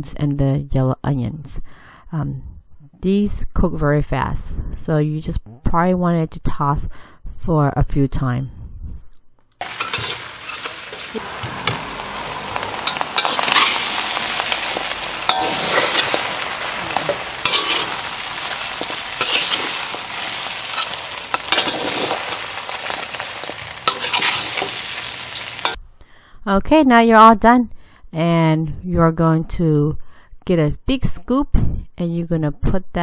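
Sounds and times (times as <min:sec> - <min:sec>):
food sizzling in a wok: 0:09.6 - 0:25.8
utensils scraping and clinking on wok: 0:09.6 - 0:25.8.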